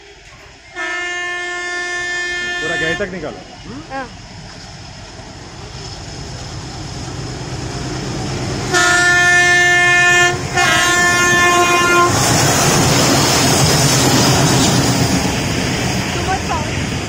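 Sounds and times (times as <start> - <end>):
diesel locomotive rumble: 0.0 - 17.0
train wheel noise: 0.0 - 17.0
train air horn blasts: 0.7 - 3.4, 8.7 - 12.3.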